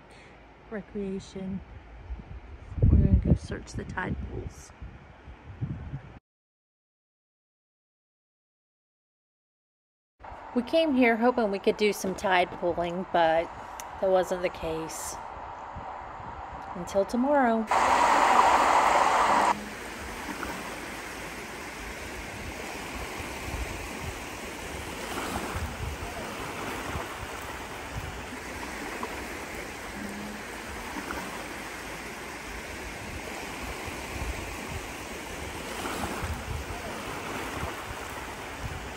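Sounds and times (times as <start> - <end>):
low rumble: 15.1 - 19.8
loud rush of noise: 17.7 - 19.7
small waves lapping on beach: 17.7 - 38.9.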